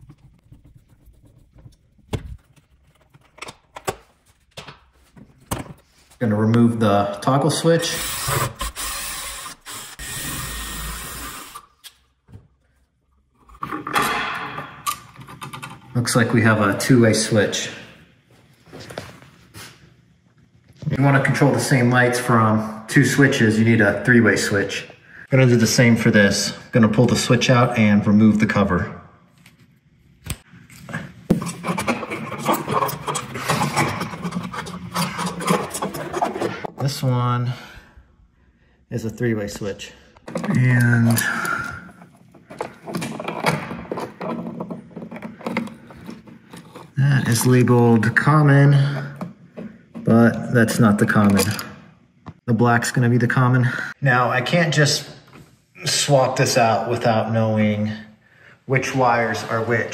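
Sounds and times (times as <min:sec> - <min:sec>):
screwdriver scraping on screws: 0:07.8 - 0:11.7, 0:31.4 - 0:36.7
cordless power driver spinning: 0:07.9 - 0:11.7.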